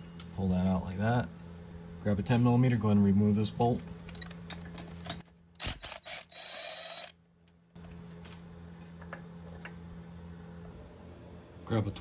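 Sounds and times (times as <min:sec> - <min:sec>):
low steady hum: 0:00.0 - 0:12.0
impact wrench spinning: 0:05.6 - 0:07.2.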